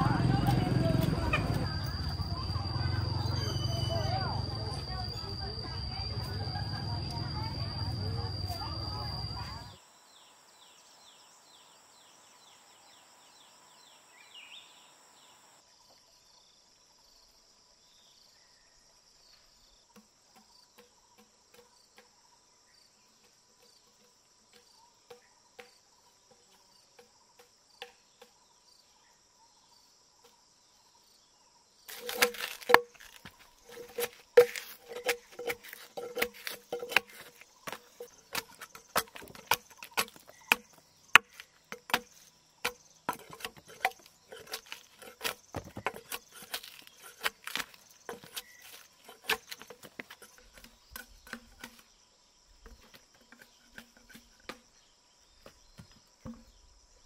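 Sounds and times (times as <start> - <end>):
insects droning: 0.0 - 57.0
bird chirp: 0.1 - 16.6, 17.8 - 57.0
machete chopping into log: 31.9 - 51.8.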